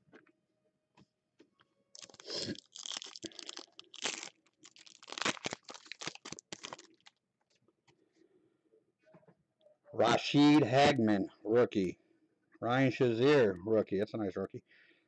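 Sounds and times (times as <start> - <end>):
foil wrapper tearing and crinkling: 2.0 - 7.2.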